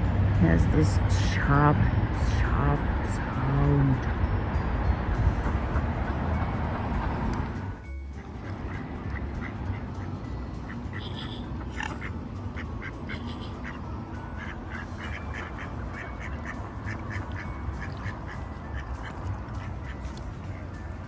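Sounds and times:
steady low rumble: 0.0s - 21.0s
ducks quacking: 8.2s - 20.1s.

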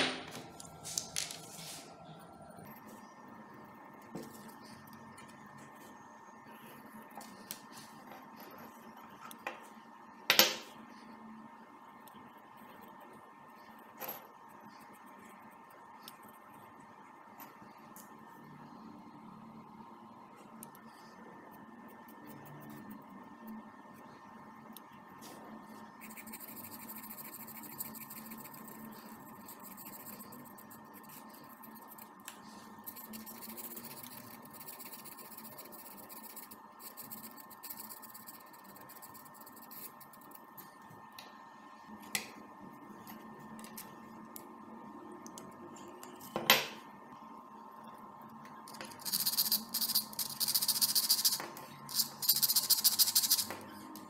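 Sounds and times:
marker pen scratching on steel: 26.0s - 32.2s, 32.8s - 40.4s.

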